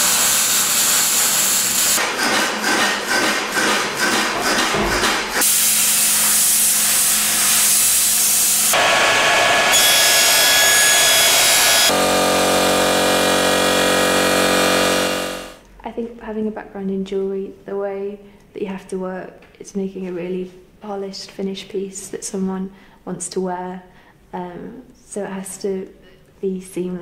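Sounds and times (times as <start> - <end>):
sandblasting cabinet hum and hiss: 0.0 - 2.0, 2.6 - 15.6
angle grinder on steel: 0.0 - 15.6
whining tool: 5.4 - 15.6.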